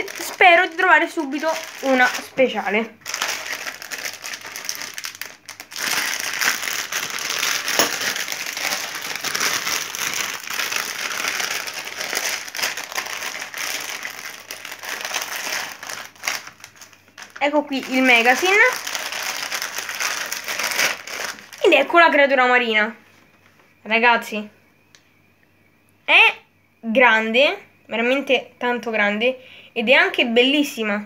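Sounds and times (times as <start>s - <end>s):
plastic packet crinkling: 0.0s - 21.9s.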